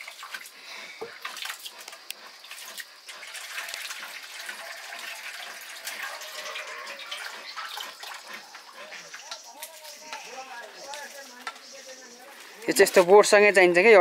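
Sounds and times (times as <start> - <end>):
liquid splashing and trickling: 0.0 - 10.0.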